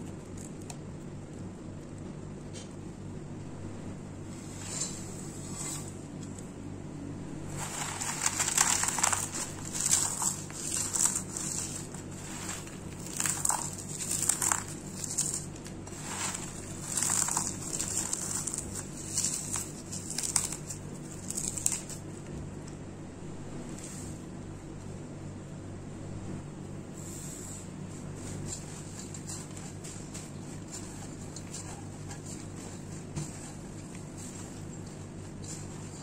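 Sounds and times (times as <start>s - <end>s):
low steady hum: 0.0s - 36.0s
lotus seeds crunching by hand: 7.5s - 22.1s.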